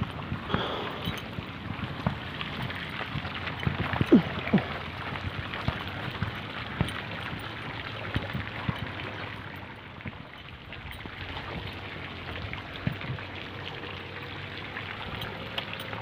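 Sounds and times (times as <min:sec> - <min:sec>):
running water trickling: 0:00.0 - 0:16.0.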